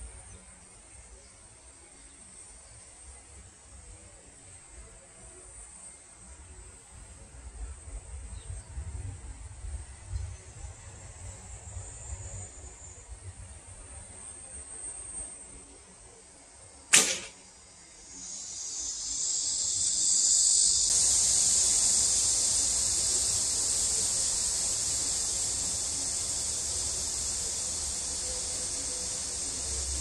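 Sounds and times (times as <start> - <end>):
high insect drone: 0.0 - 30.0
bowstring release crack: 16.9 - 17.4.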